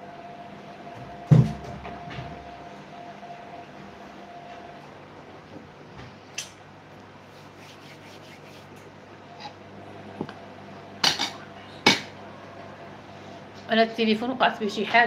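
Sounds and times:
faint steady hum: 0:00.0 - 0:15.0
phone rubbing on microphone: 0:07.2 - 0:08.8.

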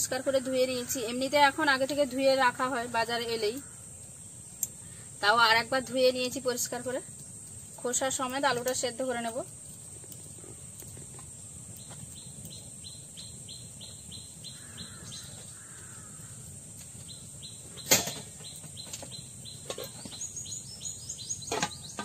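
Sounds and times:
birds chirping: 0:06.6 - 0:22.0
metal lid clattering onto pot: 0:17.8 - 0:18.4, 0:21.4 - 0:22.0.

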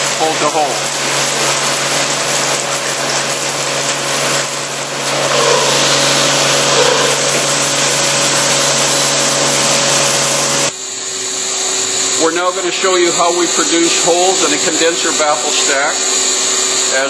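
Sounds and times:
coolant spray hissing: 0:00.0 - 0:10.7
drilling machine hum: 0:00.8 - 0:10.7.

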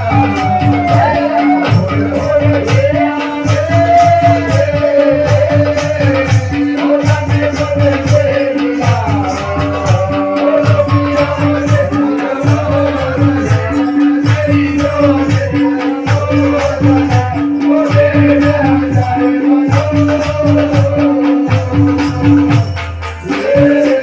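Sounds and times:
wavering melody: 0:00.0 - 0:04.8
drums beating steady rhythm: 0:00.0 - 0:24.0
jingling percussion: 0:00.0 - 0:24.0.

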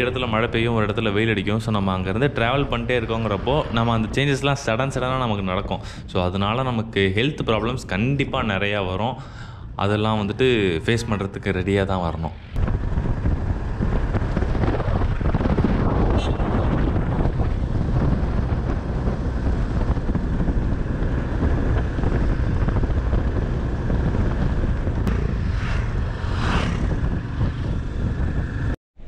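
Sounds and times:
wind rushing over microphone: 0:00.0 - 0:28.8
motorcycle engine at speed: 0:12.6 - 0:28.8.

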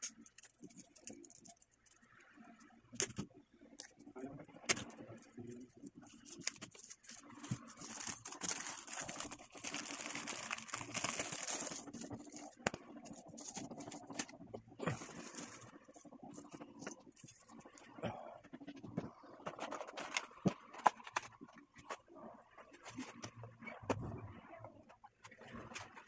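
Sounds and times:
plastic sleeve crinkling: 0:00.0 - 0:02.0, 0:04.6 - 0:17.7.

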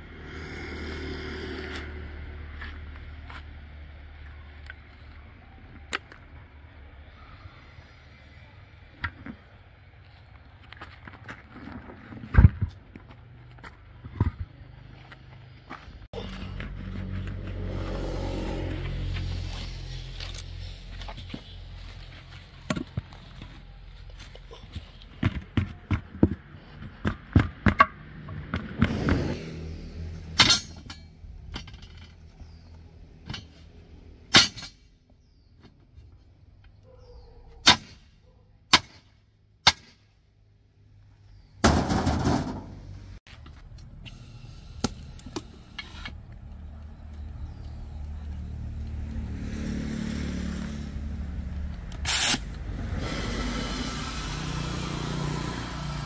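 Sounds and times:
engine running: 0:00.0 - 0:04.8, 0:13.5 - 0:24.4, 0:41.8 - 0:56.0
tool knocks and clanks: 0:41.6 - 0:42.9.

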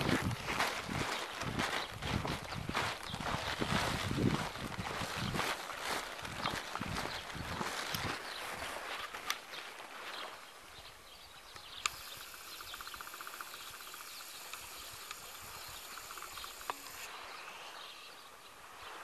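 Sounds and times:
footsteps through long grass: 0:00.0 - 0:11.2, 0:11.9 - 0:19.0
small birds chirping: 0:00.0 - 0:19.0
sharp clicks: 0:11.5 - 0:17.1
rapid ticking trill: 0:11.8 - 0:17.0.

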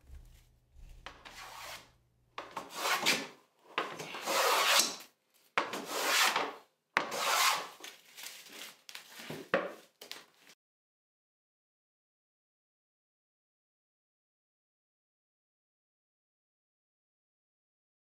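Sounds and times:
hand plane rasping on wood: 0:01.2 - 0:01.8, 0:02.6 - 0:03.2, 0:03.8 - 0:05.0, 0:05.7 - 0:07.7.

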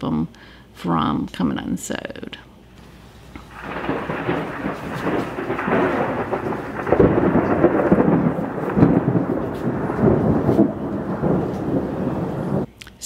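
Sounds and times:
thunder rumbling: 0:03.3 - 0:12.7.

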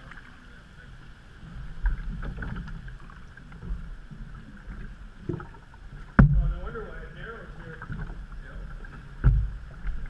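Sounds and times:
paddle splashing in water: 0:00.0 - 0:00.6, 0:01.6 - 0:10.0
low rumble: 0:00.0 - 0:10.0
dull thumps: 0:06.1 - 0:06.7, 0:09.2 - 0:09.6.

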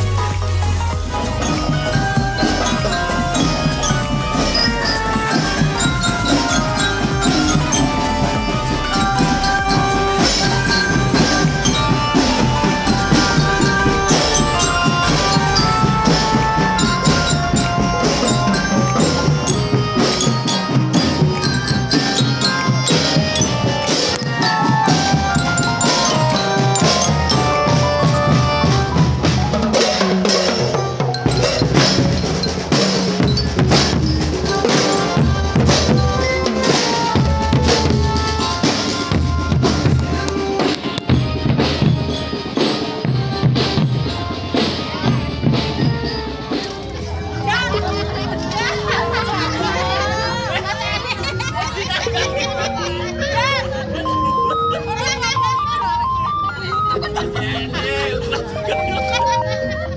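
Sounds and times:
loud music with drum beat: 0:00.0 - 0:47.8.

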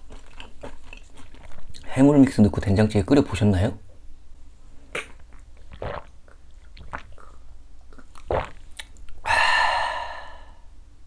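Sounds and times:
soft gulps and swallows: 0:04.9 - 0:09.2
long breathy exhale: 0:09.2 - 0:10.7.

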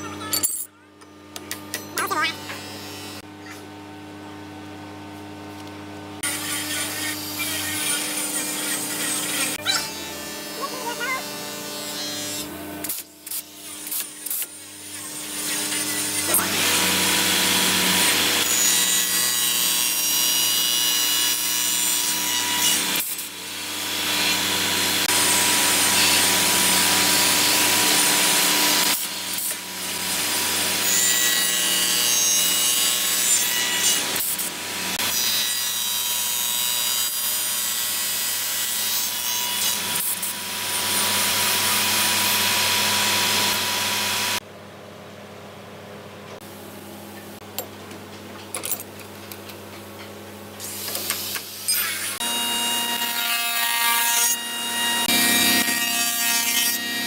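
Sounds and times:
cutter head cutting wood: 0:06.1 - 0:44.4, 0:50.6 - 0:57.0.

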